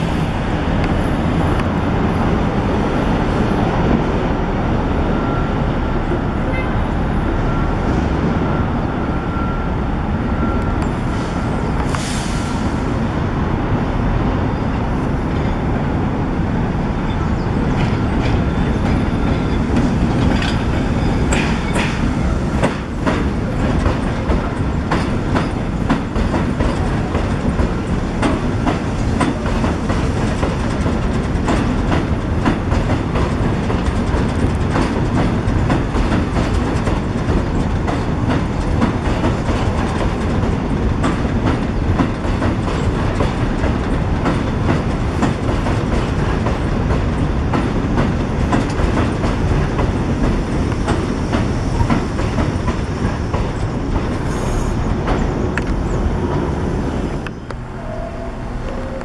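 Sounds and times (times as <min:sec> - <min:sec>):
subway train rumbling: 0:00.0 - 0:59.0
wheels clacking over rail joints: 0:17.1 - 0:57.6.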